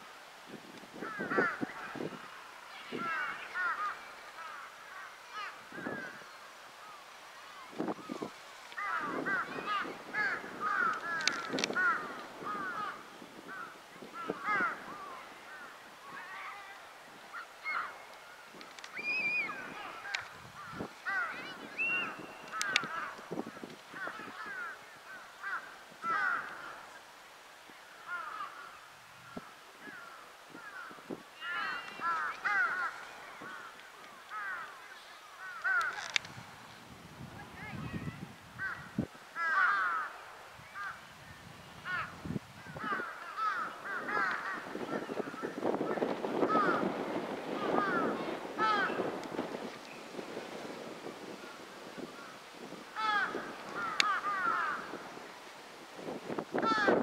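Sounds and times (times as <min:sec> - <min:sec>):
crow cawing: 0:01.0 - 0:02.2, 0:02.9 - 0:07.0, 0:08.1 - 0:18.0, 0:19.3 - 0:26.9, 0:28.0 - 0:36.3, 0:38.6 - 0:41.0, 0:41.8 - 0:49.2, 0:51.2 - 0:55.2, 0:56.6 - 0:57.0
birds calling: 0:01.0 - 0:27.0, 0:27.8 - 0:36.3, 0:38.6 - 0:55.5.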